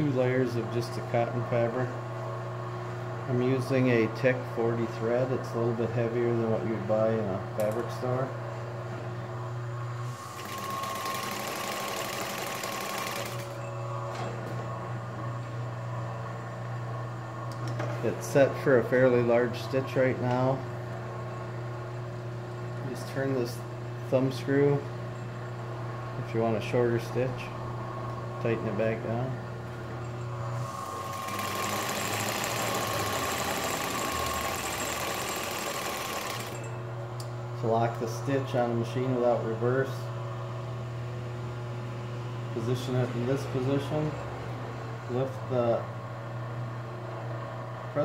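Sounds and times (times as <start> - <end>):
motor humming: 9.4 - 15.0, 27.6 - 37.5
sewing machine stitching: 10.3 - 13.6, 31.1 - 36.6.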